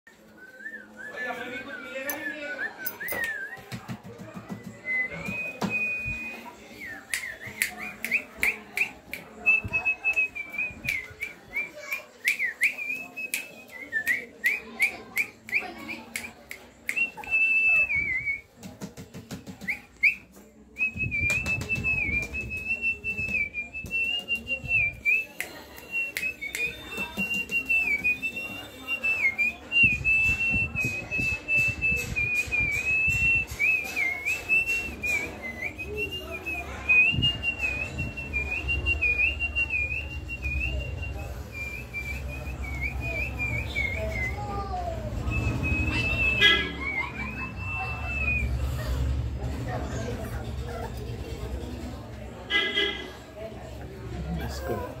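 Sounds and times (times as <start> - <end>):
person whistling: 4.7 - 18.4, 20.8 - 48.9.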